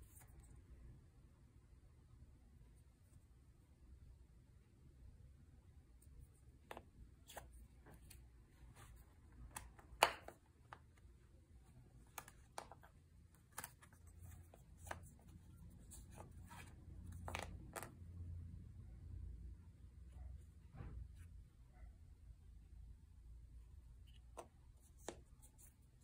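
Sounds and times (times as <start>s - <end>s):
card sheets sliding: 13.4s - 17.5s.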